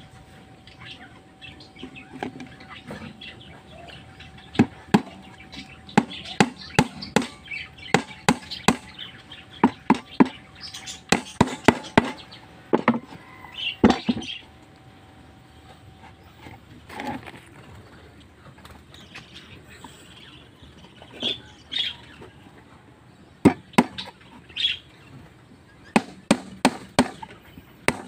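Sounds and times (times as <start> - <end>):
hammer striking nails into plywood: 26.0 - 27.2.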